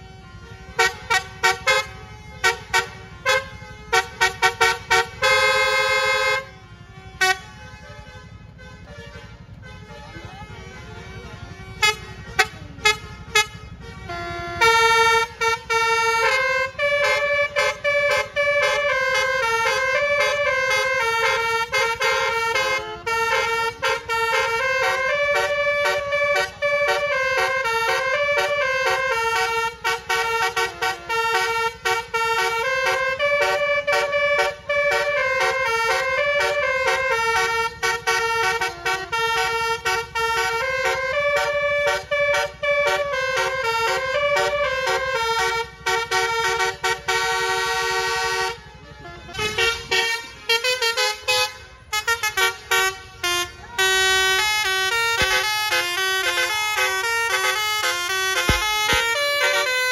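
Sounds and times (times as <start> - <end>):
musical bus horn melody: 0.0 - 59.9.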